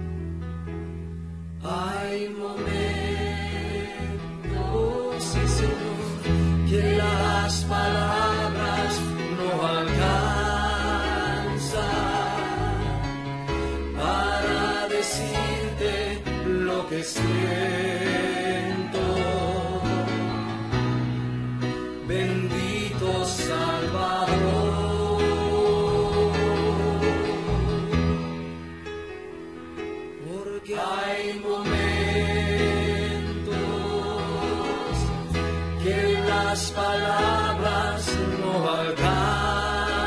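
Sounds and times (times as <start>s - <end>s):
person singing worship song: 1.6s - 20.6s, 22.0s - 28.3s, 30.2s - 40.0s.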